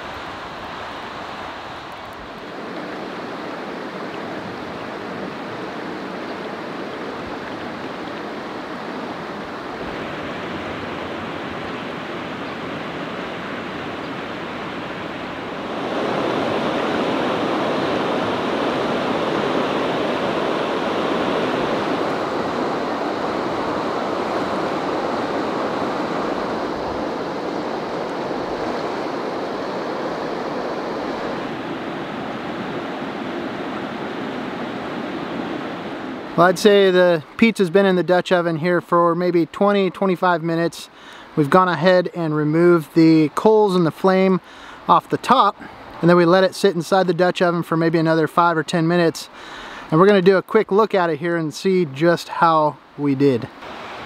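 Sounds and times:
river water rushing over rocks: 0.0 - 37.4, 52.3 - 54.0.

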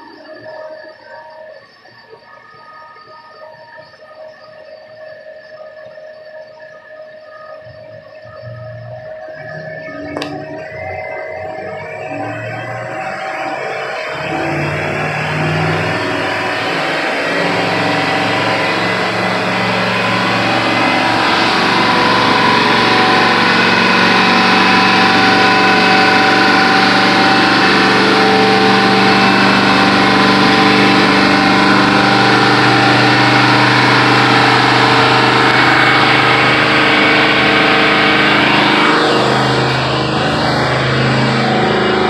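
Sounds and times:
engine running steadily: 8.2 - 42.0.

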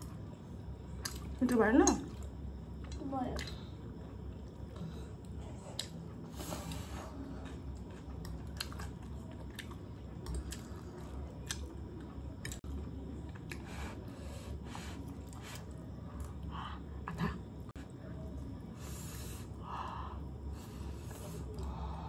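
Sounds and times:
chewing and slurping noodles: 4.5 - 14.1.

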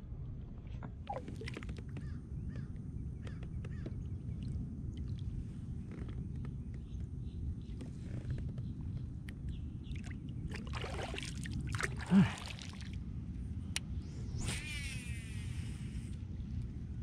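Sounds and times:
steady low rumble: 0.0 - 17.0
water sloshing and splashing: 0.6 - 2.0, 9.9 - 13.0.

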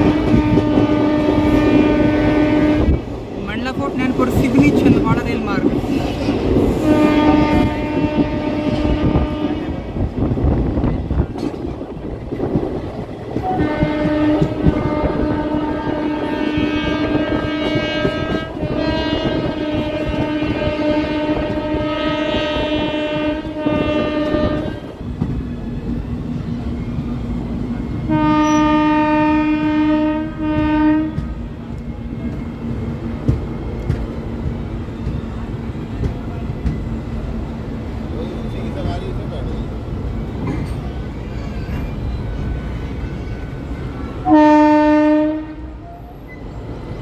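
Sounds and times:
train horn blasts: 0.0 - 3.0, 6.8 - 10.1, 13.4 - 24.9, 28.0 - 31.3, 43.8 - 46.3
train clattering on rails: 0.0 - 47.0.

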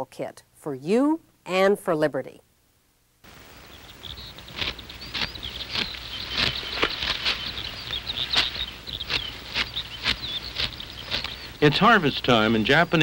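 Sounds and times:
steady outdoor haze: 3.2 - 13.0
dry rice stalks cut and rustled: 4.2 - 12.4.

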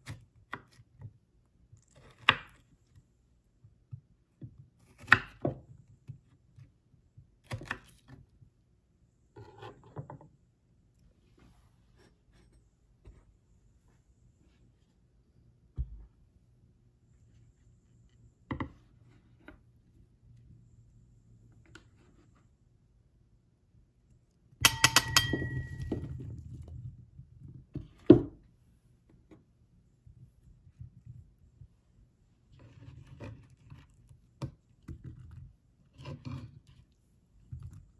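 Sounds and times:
ceramic plate clinking on bowl: 24.6 - 26.1
crockery knocks: 24.7 - 26.0.

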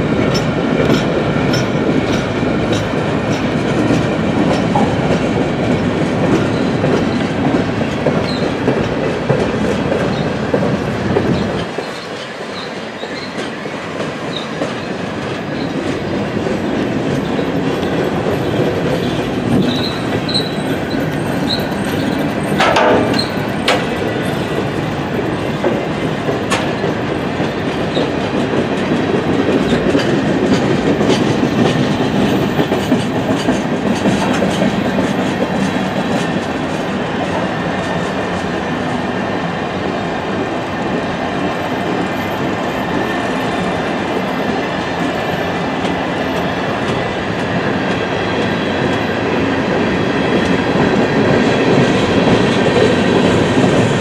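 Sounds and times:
train cars rumbling past: 0.0 - 54.0
wheels clattering over rail: 6.2 - 36.9
high wheel squeals: 8.2 - 8.6, 11.3 - 13.5, 14.3 - 15.8, 17.1 - 24.6.

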